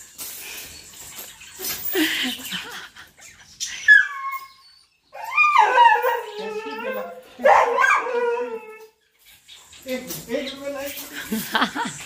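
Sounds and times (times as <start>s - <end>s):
dog whining: 3.8s - 9.0s.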